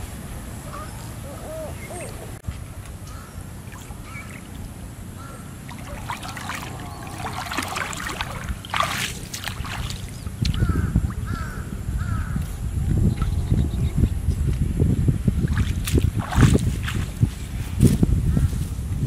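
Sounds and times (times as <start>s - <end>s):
bird calls: 0.5s - 2.4s, 3.0s - 14.6s
water splashing from wading: 3.6s - 11.3s, 15.4s - 17.4s
low rumble: 4.6s - 19.0s.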